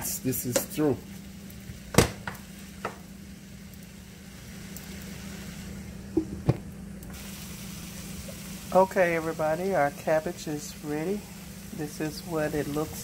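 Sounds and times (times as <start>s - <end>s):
vegetables sizzling in skillet: 0.0s - 13.0s.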